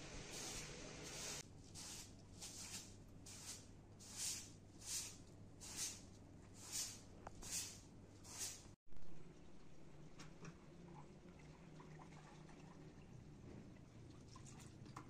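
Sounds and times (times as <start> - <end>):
hand broom sweeping carpet: 0.0 - 8.8.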